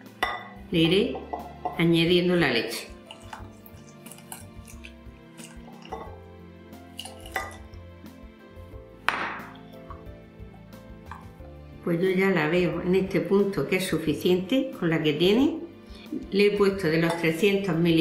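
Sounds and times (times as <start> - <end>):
soft background music: 0.0 - 18.0
whisk scraping glass bowl: 3.0 - 6.1.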